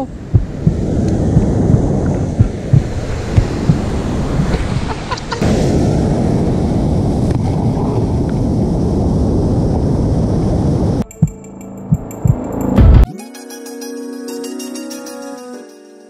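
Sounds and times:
wind buffeting microphone: 0:00.0 - 0:11.1
surf washing up shore: 0:00.1 - 0:11.0.

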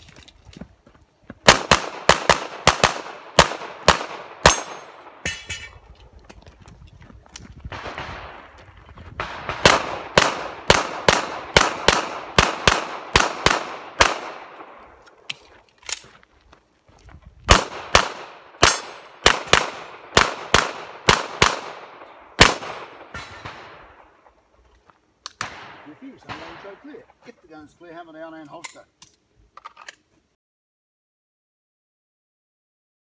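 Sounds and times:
pistol shots with echo: 0:01.5 - 0:05.6, 0:09.2 - 0:14.8, 0:17.5 - 0:24.1, 0:25.4 - 0:26.9.

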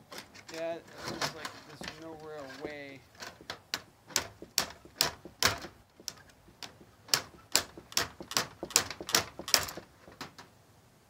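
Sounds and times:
hand tool clicking on metal clamp: 0:01.7 - 0:10.3.

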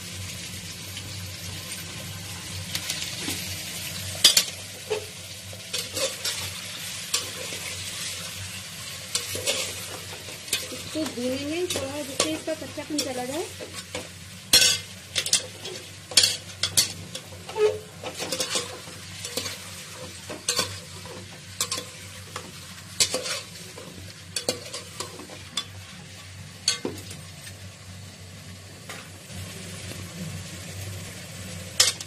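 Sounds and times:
chicken sizzling in hot oil: 0:00.0 - 0:32.0
metal ladle scraping pot: 0:14.6 - 0:19.6.

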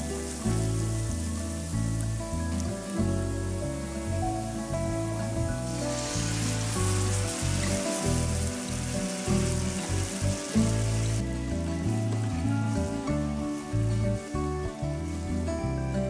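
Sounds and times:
background music: 0:00.0 - 0:16.0
coconut milk sizzling in a pan: 0:00.0 - 0:16.0.

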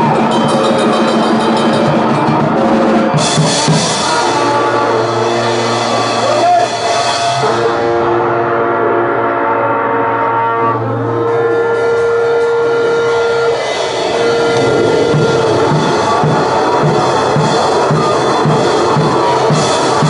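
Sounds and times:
even drum beat: 0:00.0 - 0:07.8, 0:11.8 - 0:20.0
harsh distorted noise: 0:00.0 - 0:20.0.

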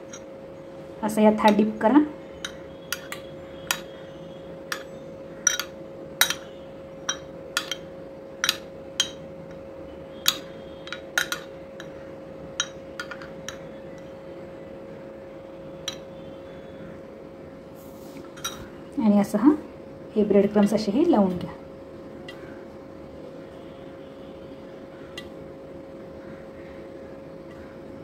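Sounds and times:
faint steady hum: 0:00.0 - 0:28.0
spoon clinking against glass bowl: 0:02.4 - 0:03.9, 0:04.7 - 0:09.2, 0:10.2 - 0:11.9.

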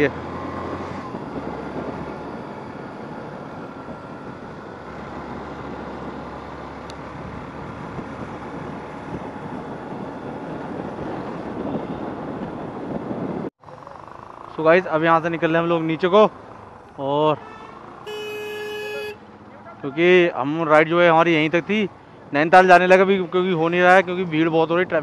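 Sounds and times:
wind noise: 0:00.1 - 0:13.5
motorcycle engine: 0:13.6 - 0:20.0.

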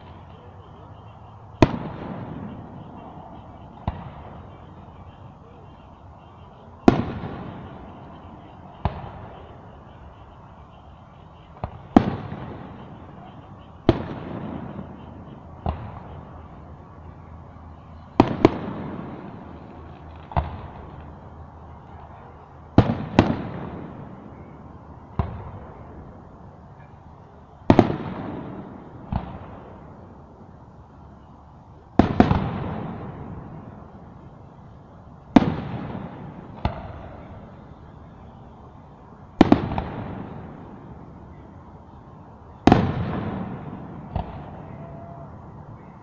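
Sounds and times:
firework shells booming: 0:01.5 - 0:16.7, 0:18.2 - 0:21.2, 0:22.7 - 0:24.2, 0:32.0 - 0:33.9, 0:35.3 - 0:37.6, 0:39.3 - 0:41.0, 0:42.6 - 0:45.2.

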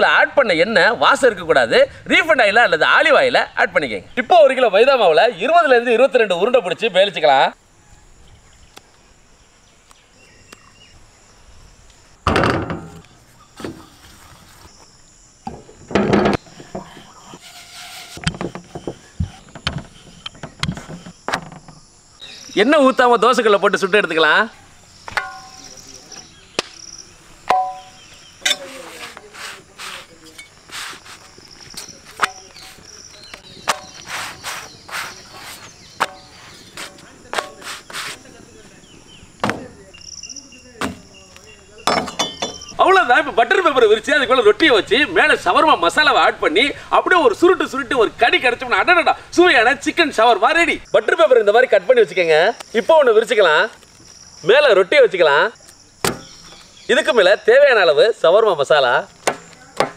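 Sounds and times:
insects chirping: 0:00.0 - 0:59.9
metal utensil clinking on iron griddle: 0:25.1 - 0:25.9, 0:27.5 - 0:29.0, 0:41.9 - 0:42.7
soft rustling of flatbreads: 0:28.6 - 0:39.1.

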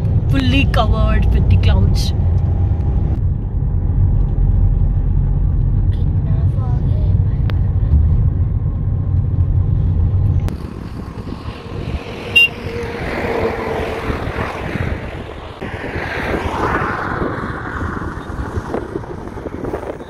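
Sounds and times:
road rumble inside car: 0:00.0 - 0:13.0
wind noise on microphone: 0:00.0 - 0:20.0.

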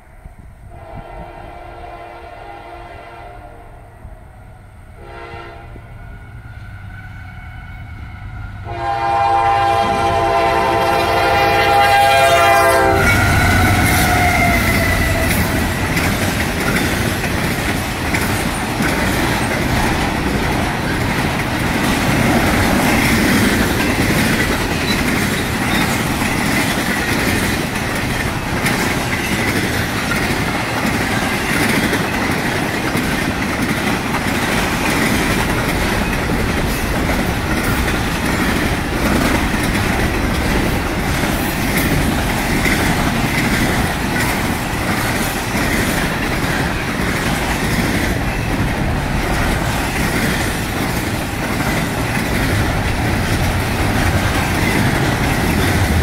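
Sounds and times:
train horn blasts: 0:00.7 - 0:04.0, 0:04.9 - 0:15.5
freight cars rolling by: 0:08.2 - 0:56.0.

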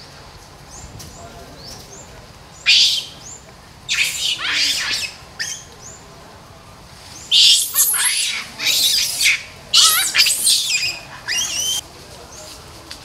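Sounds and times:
high screechy animal calls: 0:02.6 - 0:03.3, 0:03.9 - 0:05.7, 0:07.2 - 0:11.8.

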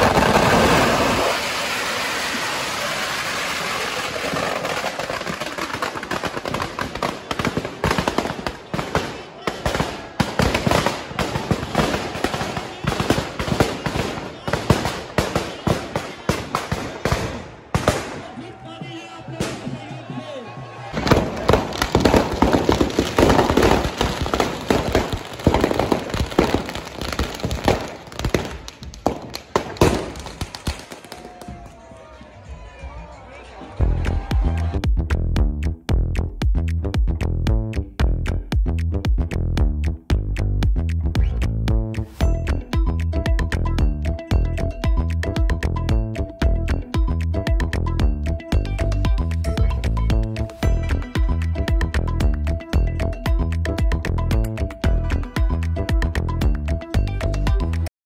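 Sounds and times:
fireworks rushing hiss: 0:00.0 - 0:06.1
firecracker pops crackling: 0:00.0 - 0:18.4, 0:21.0 - 0:31.7.

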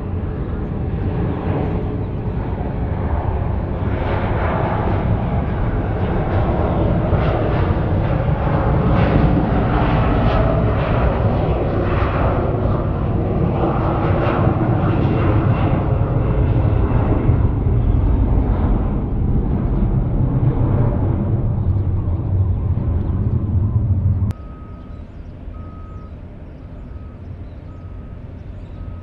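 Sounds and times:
jet engines roaring: 0:00.0 - 0:29.0.

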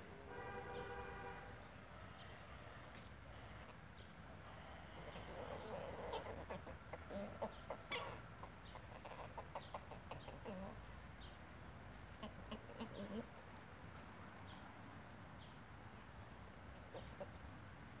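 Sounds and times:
chickens clucking: 0:02.0 - 0:11.4, 0:12.1 - 0:13.4, 0:16.7 - 0:17.6.

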